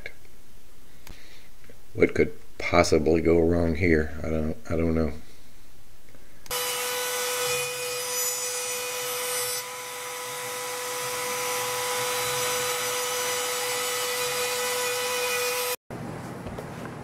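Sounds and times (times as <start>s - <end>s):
router bit cutting wood: 6.5s - 15.8s
router whining: 6.5s - 15.8s.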